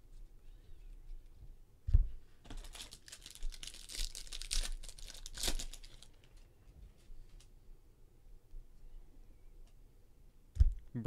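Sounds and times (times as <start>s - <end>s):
foil pack crinkling: 2.5s - 6.4s.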